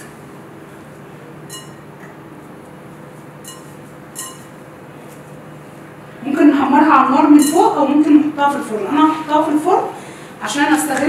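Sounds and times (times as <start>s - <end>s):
faint hum: 0.0s - 11.0s
hands rubbing pastry: 2.3s - 6.0s.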